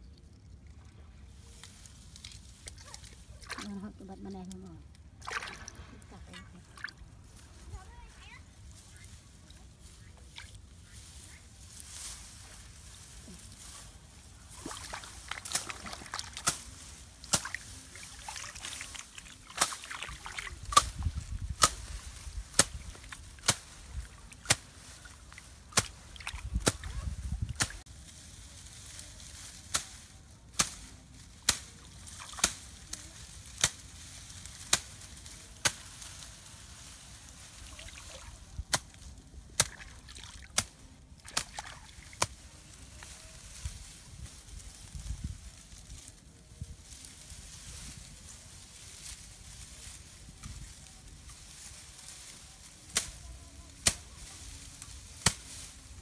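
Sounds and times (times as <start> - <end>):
water sloshing and splashing: 2.2 - 7.3, 14.4 - 21.5, 22.5 - 27.8, 32.1 - 32.5, 37.4 - 38.5, 39.6 - 40.5, 41.2 - 42.2.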